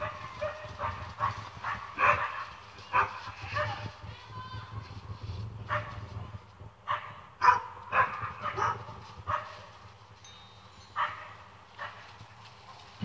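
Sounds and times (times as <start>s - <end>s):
dog barking: 0.0s - 3.8s, 5.7s - 6.0s, 6.9s - 9.7s, 11.0s - 12.0s.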